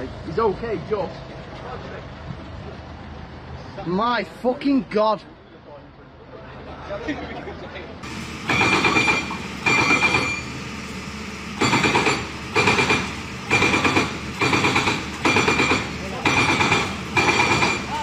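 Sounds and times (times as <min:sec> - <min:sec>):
steady high ringing tone: 0:08.4 - 0:10.7.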